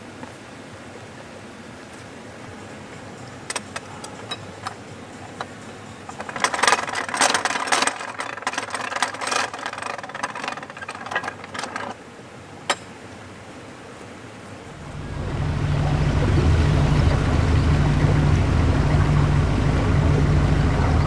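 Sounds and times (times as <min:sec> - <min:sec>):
ratchet and pawl clattering: 0:03.5 - 0:12.0.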